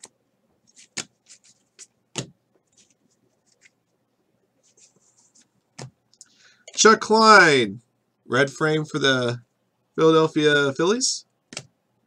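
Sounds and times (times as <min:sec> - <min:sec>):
trading cards flipped by hand: 0:00.7 - 0:03.8.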